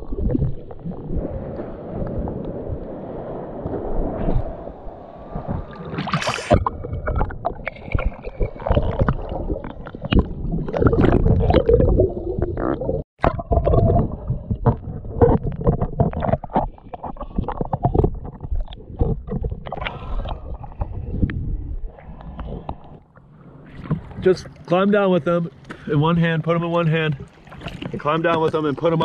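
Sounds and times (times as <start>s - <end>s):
muffled underwater rumbling: 0.0s - 29.0s
splash: 5.2s - 12.0s, 27.1s - 29.0s
seawater sloshing: 21.9s - 29.0s.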